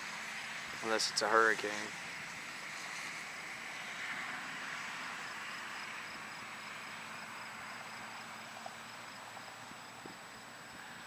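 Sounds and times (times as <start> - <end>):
steady hiss: 0.0 - 11.0
insects chirping: 2.0 - 11.0.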